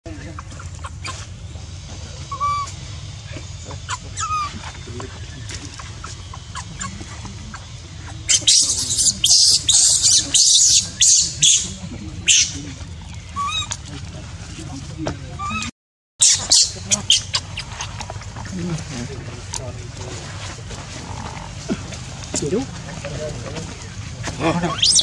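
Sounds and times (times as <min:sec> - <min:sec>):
baby monkey shrieking: 0:00.4 - 0:01.3, 0:02.2 - 0:12.6, 0:13.3 - 0:13.8, 0:15.4 - 0:17.9, 0:24.6 - 0:25.0.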